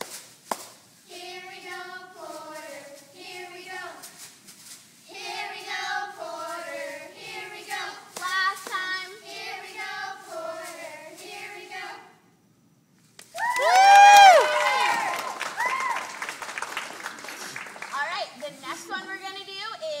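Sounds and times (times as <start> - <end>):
hands clapping: 0.0 - 0.8, 8.2 - 8.9, 13.2 - 18.1
girls chanting a cheer: 1.1 - 4.0, 5.1 - 12.1.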